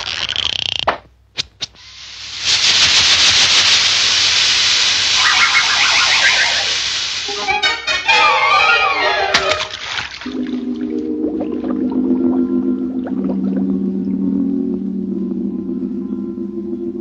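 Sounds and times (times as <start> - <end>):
air hissing from valve: 1.8 - 7.4
wavering whistle: 5.1 - 9.2.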